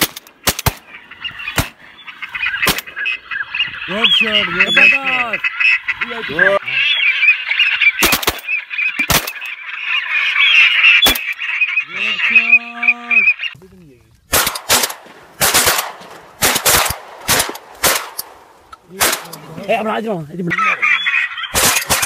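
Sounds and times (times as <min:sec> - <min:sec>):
shotgun shots: 0:00.0 - 0:00.9, 0:01.5 - 0:01.8, 0:02.6 - 0:03.0, 0:08.0 - 0:09.5, 0:14.3 - 0:19.5, 0:21.5 - 0:22.0
ducks chattering: 0:00.0 - 0:22.0.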